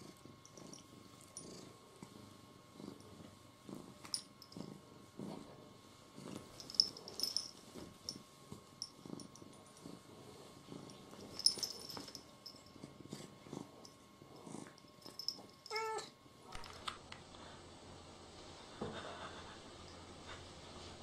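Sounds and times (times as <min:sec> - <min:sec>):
cat purring: 0:00.0 - 0:16.1.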